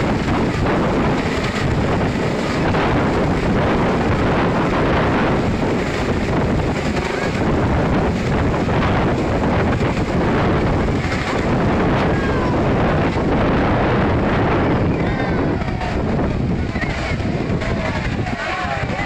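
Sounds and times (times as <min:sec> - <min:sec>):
helicopter flying overhead: 0:00.0 - 0:19.0
wind buffeting microphone: 0:00.0 - 0:19.0.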